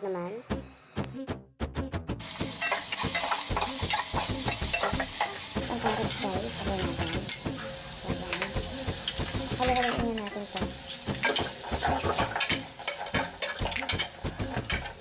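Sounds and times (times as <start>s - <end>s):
food sizzling: 2.2s - 15.0s
metal ladle scraping pot: 10.9s - 15.0s.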